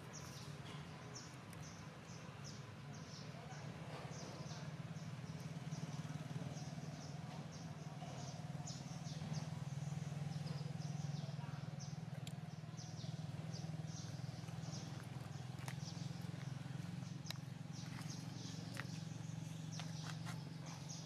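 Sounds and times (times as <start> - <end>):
steady low hum: 7.2 - 21.0.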